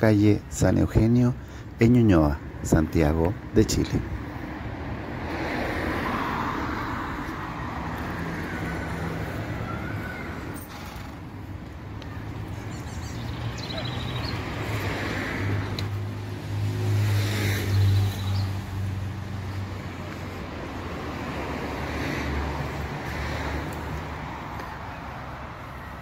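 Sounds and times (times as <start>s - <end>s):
road background noise: 0.0s - 26.0s
vehicle engine passing: 13.1s - 24.6s.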